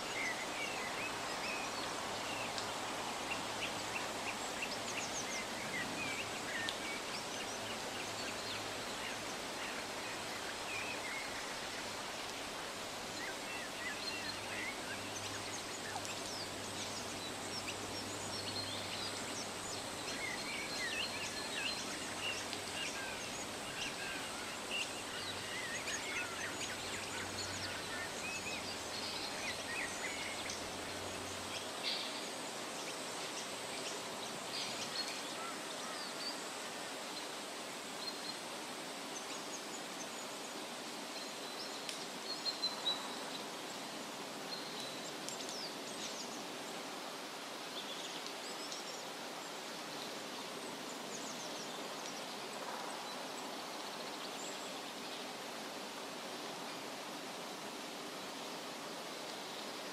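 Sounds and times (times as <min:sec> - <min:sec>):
steady background hiss: 0:00.0 - 0:59.9.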